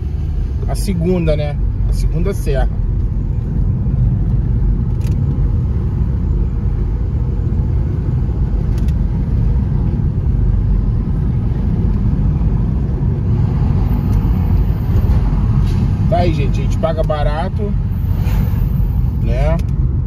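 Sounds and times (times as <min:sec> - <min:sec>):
car driving interior rumble: 0:00.0 - 0:20.0.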